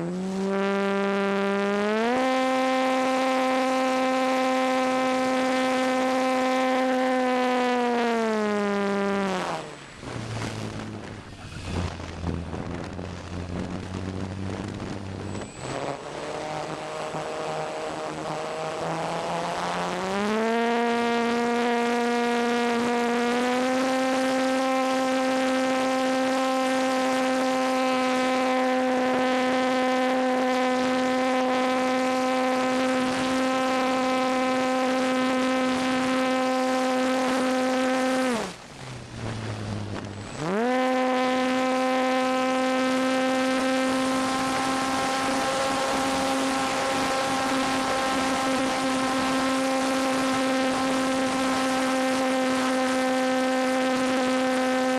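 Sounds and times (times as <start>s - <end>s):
electric motor and propeller whine: 0.0s - 54.9s
wind rush: 9.3s - 19.2s, 32.5s - 41.2s.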